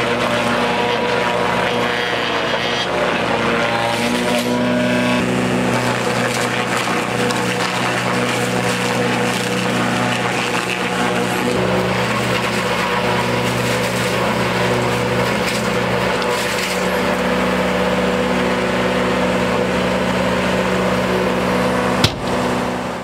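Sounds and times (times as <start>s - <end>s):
cutter head shredding bark: 0.0s - 23.0s
post peeler running: 0.0s - 23.0s
tractor engine hum: 0.0s - 23.0s
sharp knock: 22.0s - 22.4s.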